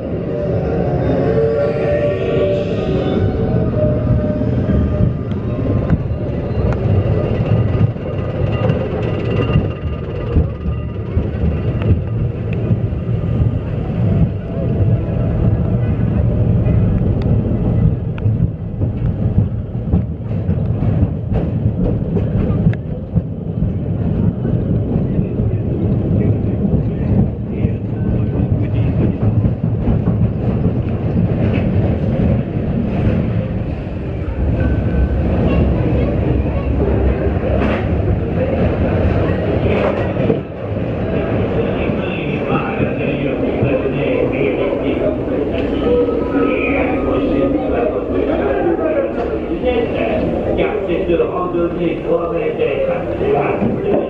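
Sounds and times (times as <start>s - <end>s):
roller coaster wheels rumbling: 0.0s - 54.0s.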